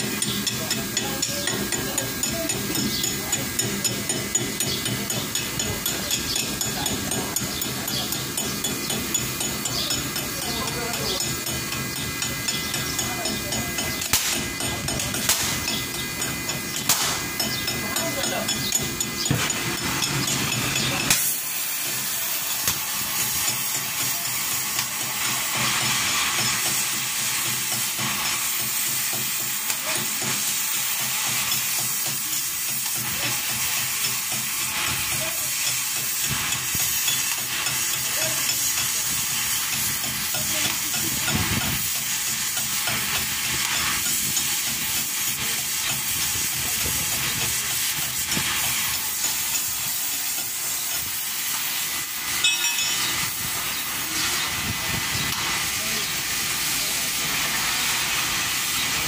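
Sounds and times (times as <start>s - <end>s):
welding arc crackling hiss: 0.0s - 59.0s.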